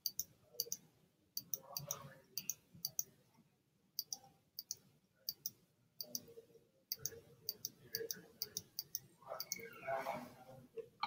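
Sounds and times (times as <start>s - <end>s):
mouse buttons clicking: 0.0s - 0.8s, 1.4s - 3.1s, 4.0s - 6.3s, 6.9s - 9.7s.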